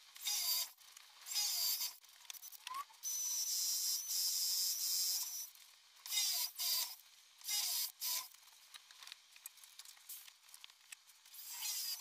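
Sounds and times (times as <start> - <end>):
cordless drill boring into wood: 0.2 - 2.0, 6.1 - 8.3, 11.4 - 12.0.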